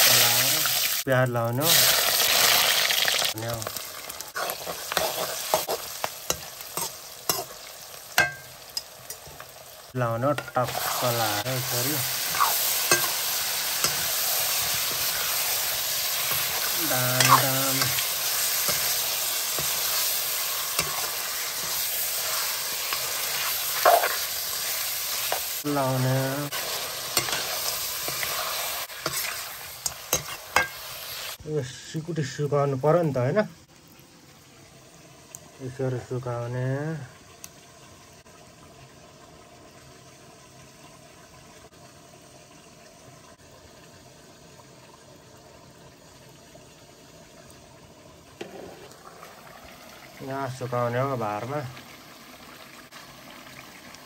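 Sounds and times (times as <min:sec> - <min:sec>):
meat sizzling in a wok: 0:00.0 - 0:33.6, 0:46.0 - 0:54.0
faint watery hiss: 0:00.0 - 0:54.0
metal ladle scraping a pan: 0:04.3 - 0:09.4, 0:10.3 - 0:25.4, 0:26.6 - 0:31.2.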